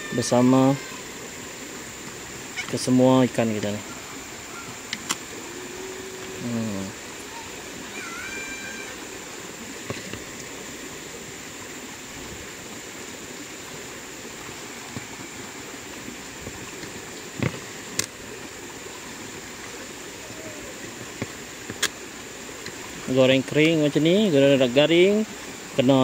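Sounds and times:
stream flowing: 0:00.0 - 0:26.0
thin high whine: 0:02.5 - 0:09.6.

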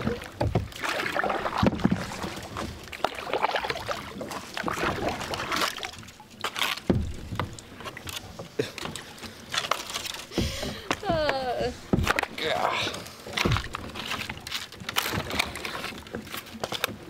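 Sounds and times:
paddle splashing through water: 0:00.0 - 0:17.0
sharp knocks and clicks: 0:06.7 - 0:07.6, 0:09.7 - 0:12.4.

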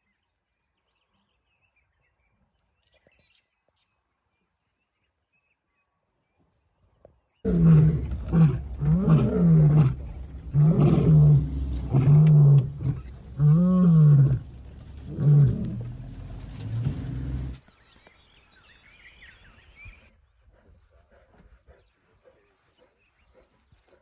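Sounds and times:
lion grunting: 0:07.5 - 0:17.6
lion roaring: 0:07.5 - 0:17.6.

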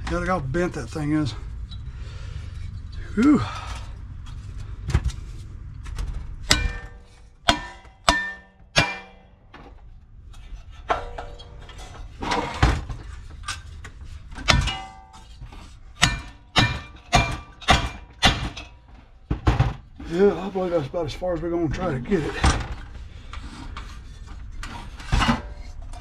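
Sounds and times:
hammer striking metal: 0:06.4 - 0:09.4, 0:16.0 - 0:18.8.

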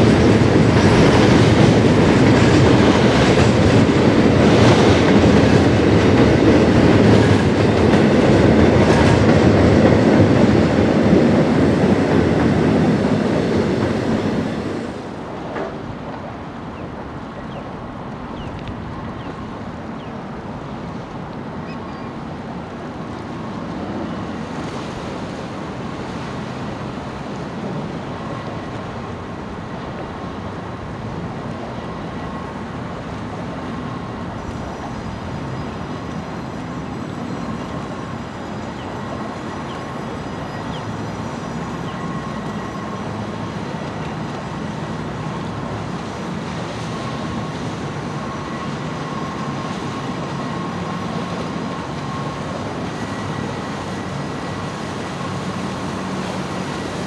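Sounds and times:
outboard motorboats running: 0:15.8 - 0:57.0.

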